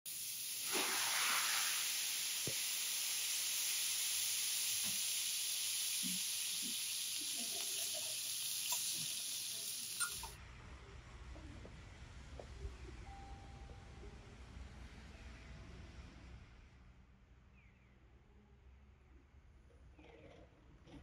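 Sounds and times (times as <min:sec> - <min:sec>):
food sizzling on griddle: 0:00.1 - 0:10.4.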